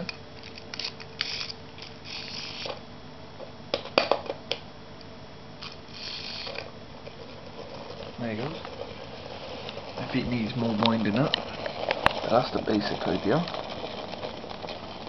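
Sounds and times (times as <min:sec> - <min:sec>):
toy clicking and clattering on tiles: 0:00.4 - 0:02.8, 0:05.6 - 0:15.0
clockwork motor whirring: 0:00.8 - 0:02.8, 0:05.6 - 0:15.0.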